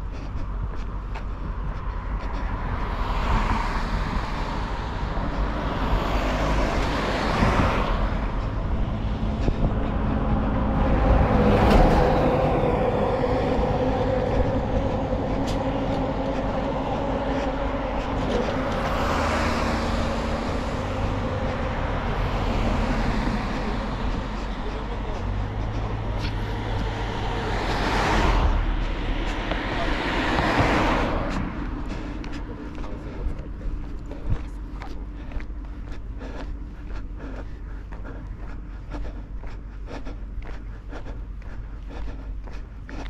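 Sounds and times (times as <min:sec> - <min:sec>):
small truck engine hum: 0:00.0 - 0:43.0
vehicles passing by: 0:00.0 - 0:43.0.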